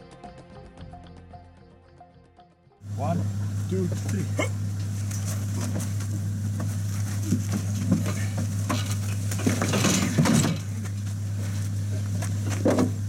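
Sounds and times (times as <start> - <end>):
steady low hum: 2.8 - 13.0
carcass scraping and dragging: 2.9 - 13.0
clatter against metal rack: 5.1 - 11.0.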